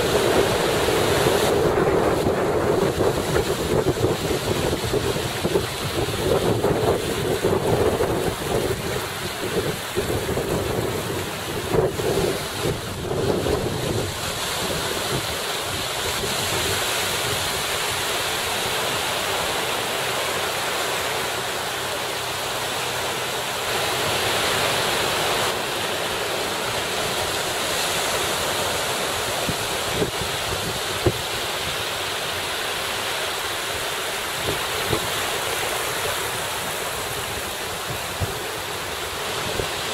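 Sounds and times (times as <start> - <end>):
wind buffeting microphone: 0.0 - 18.1, 28.6 - 31.8
small waves washing: 0.0 - 39.9.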